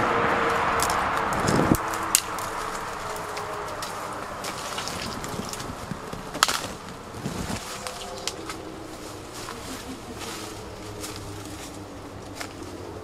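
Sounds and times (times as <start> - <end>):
footsteps through dry leaves: 0.5 - 13.0
twig snapping: 0.8 - 7.0.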